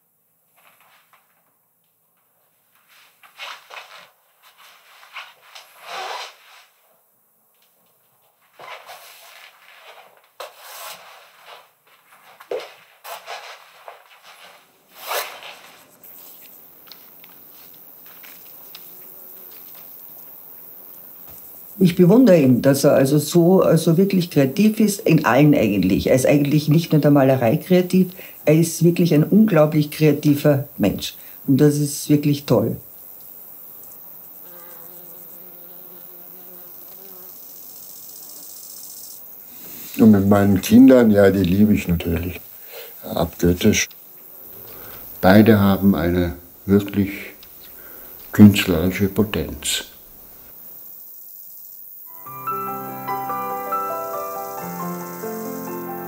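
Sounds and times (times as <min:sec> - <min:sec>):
faint hiss: 0:00.0 - 0:56.0
paint scraped across canvas: 0:02.9 - 0:06.8, 0:08.6 - 0:11.8, 0:13.0 - 0:16.6
faint high insect chirping: 0:14.7 - 0:56.0
flying insect buzzing: 0:14.9 - 0:28.7, 0:29.3 - 0:40.8, 0:42.1 - 0:46.7, 0:47.4 - 0:48.9, 0:49.9 - 0:56.0.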